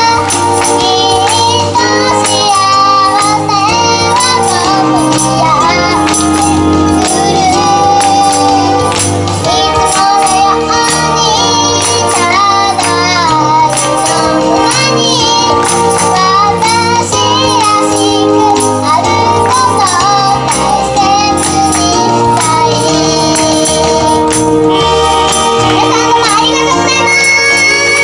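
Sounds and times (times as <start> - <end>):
backing track with steady beat: 0.0 - 28.0
girl singing pop song: 0.0 - 28.0.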